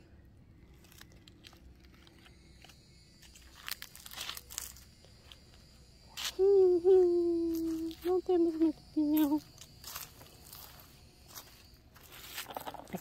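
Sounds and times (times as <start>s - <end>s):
footsteps on grass and dry leaves: 3.2s - 5.4s, 7.0s - 13.0s.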